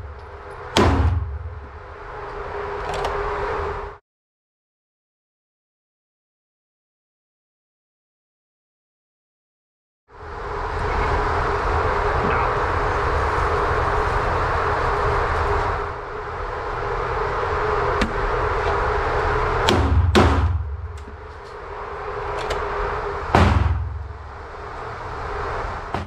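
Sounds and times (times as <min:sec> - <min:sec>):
electric target carrier whirring: 0:00.0 - 0:04.0, 0:10.2 - 0:26.0
ventilation whir: 0:00.0 - 0:04.0, 0:10.1 - 0:26.0
gunshots with booming echo: 0:00.8 - 0:01.6, 0:19.6 - 0:21.0, 0:23.4 - 0:24.1.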